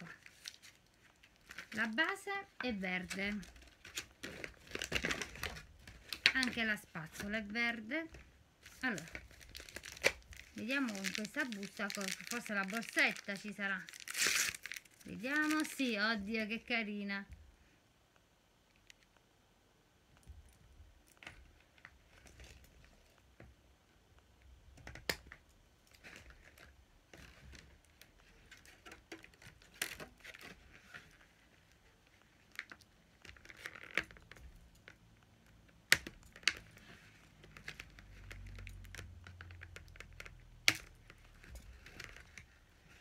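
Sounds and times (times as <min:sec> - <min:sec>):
plastic packaging crinkling: 0:00.0 - 0:16.4, 0:25.9 - 0:34.9.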